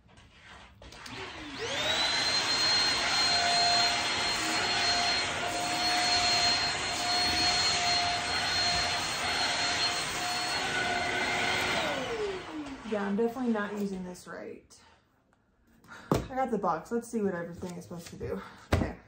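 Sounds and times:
vacuum cleaner running: 0.8s - 14.0s.

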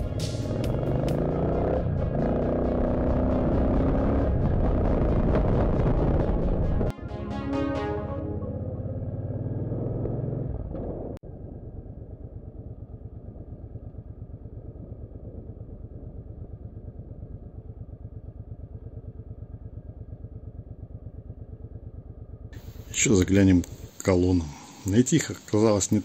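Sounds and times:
motorcycle engine running: 0.0s - 6.9s, 8.2s - 24.0s
background music: 0.0s - 9.6s.

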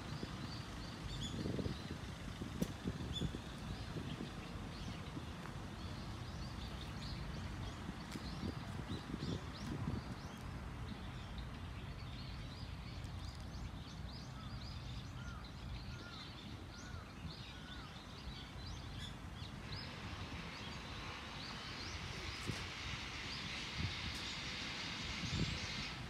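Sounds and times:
small birds chirping: 0.0s - 26.0s
steady hiss: 19.6s - 26.0s.

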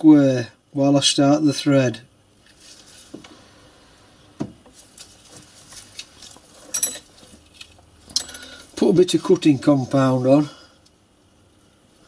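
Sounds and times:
metallic clink: 6.7s - 7.1s.

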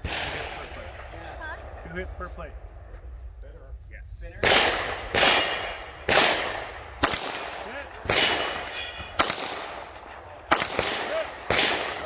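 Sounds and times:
handgun shots echoing: 4.4s - 12.0s.

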